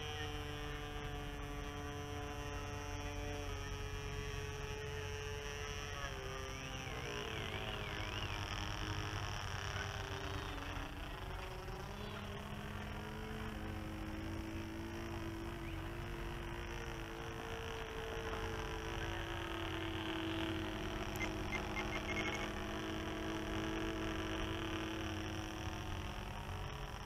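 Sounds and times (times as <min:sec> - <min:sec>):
model airplane engine droning: 0:00.0 - 0:27.0.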